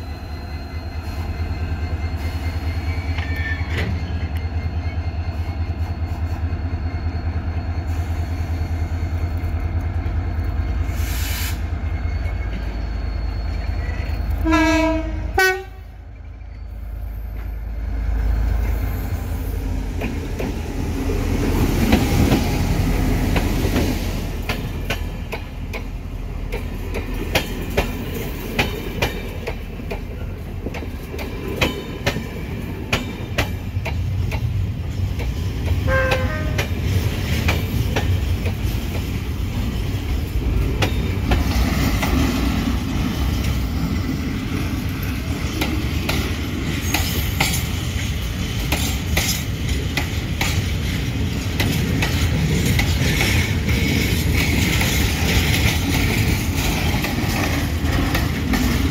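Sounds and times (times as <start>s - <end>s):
train coaches rumbling past: 0.0s - 58.9s
train horn toot: 14.3s - 16.0s, 35.8s - 36.8s
wheels clicking over rail joints: 23.2s - 58.9s.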